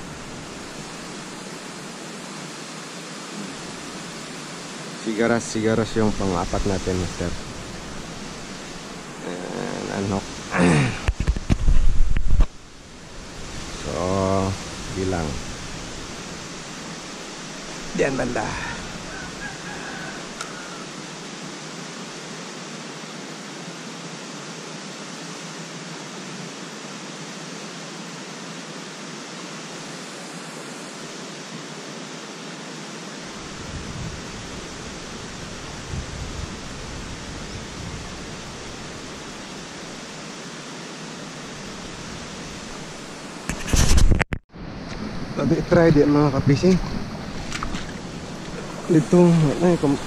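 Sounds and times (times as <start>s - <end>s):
wind buffeting microphone: 10.0s - 16.8s, 33.4s - 39.6s
sea water lapping against rocks: 46.0s - 50.0s.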